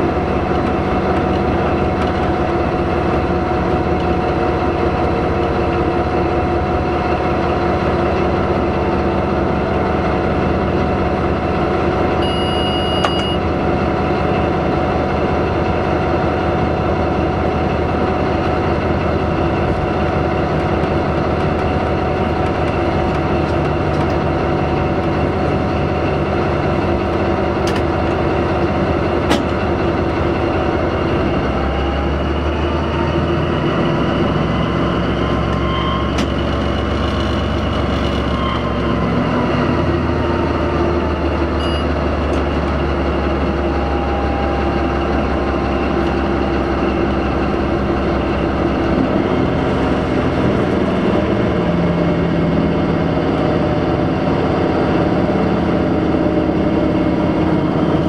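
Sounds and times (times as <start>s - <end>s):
locomotive rumbling along track: 0.0s - 58.0s
short high beep: 12.2s - 13.4s, 41.6s - 42.0s.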